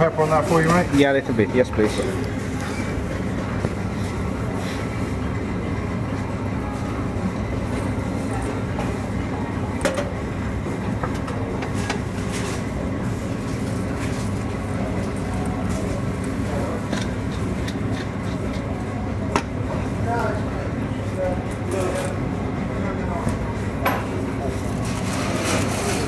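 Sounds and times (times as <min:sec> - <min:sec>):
utensils and metal trays clattering: 0:00.0 - 0:03.1, 0:11.1 - 0:18.8, 0:23.2 - 0:26.0
low rumble of food stall: 0:00.0 - 0:26.0.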